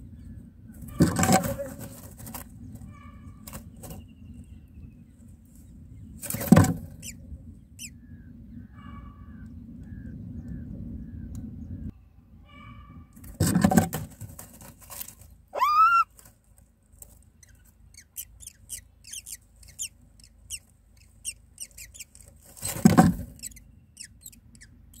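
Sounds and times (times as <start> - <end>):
nestlings cheeping: 15.6 - 16.0, 17.4 - 25.0
loud rising bird call: 15.6 - 16.1.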